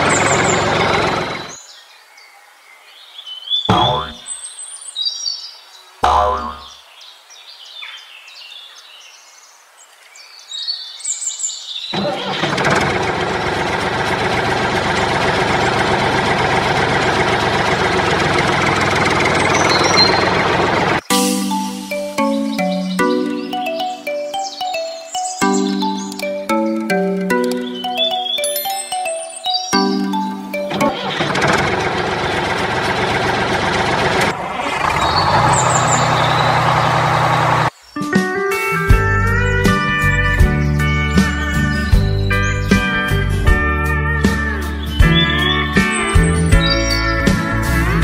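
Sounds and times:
tractor engine idling: 0:00.0 - 0:01.6, 0:12.0 - 0:21.0, 0:30.2 - 0:37.7.

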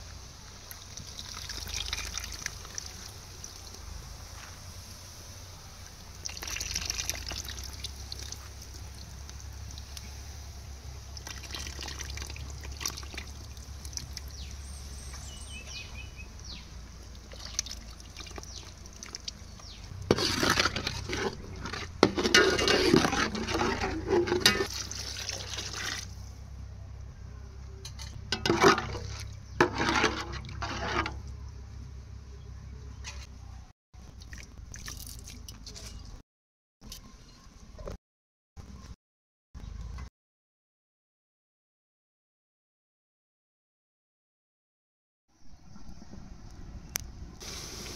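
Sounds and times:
liquid trickling and sloshing: 0:00.7 - 0:03.7, 0:06.2 - 0:10.0, 0:11.1 - 0:14.5, 0:17.1 - 0:26.2, 0:34.0 - 0:36.2.

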